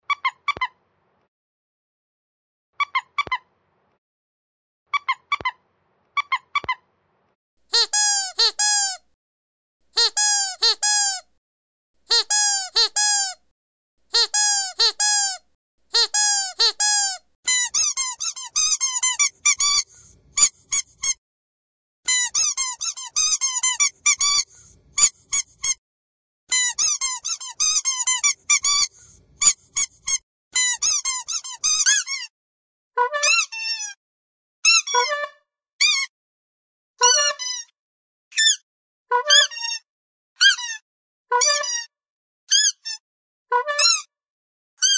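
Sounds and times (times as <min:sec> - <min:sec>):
higher-pitched squeaky toy: 0:00.1 - 0:00.8, 0:02.8 - 0:03.5, 0:05.0 - 0:05.6, 0:06.2 - 0:06.8, 0:07.7 - 0:09.0, 0:10.0 - 0:11.3, 0:12.1 - 0:13.4, 0:14.1 - 0:21.2, 0:22.1 - 0:25.8, 0:26.5 - 0:32.3, 0:33.0 - 0:34.0, 0:34.6 - 0:36.1, 0:37.0 - 0:41.9, 0:42.5 - 0:44.1
squeaky dog toy squeaking: 0:00.1 - 0:00.8, 0:02.8 - 0:03.5, 0:04.9 - 0:05.6, 0:07.7 - 0:09.0, 0:09.9 - 0:11.3, 0:12.0 - 0:13.4, 0:14.1 - 0:21.2, 0:22.1 - 0:25.8, 0:26.5 - 0:32.3, 0:33.0 - 0:34.0, 0:34.6 - 0:36.1, 0:37.0 - 0:37.7, 0:38.3 - 0:39.8, 0:40.4 - 0:41.9, 0:42.5 - 0:44.1.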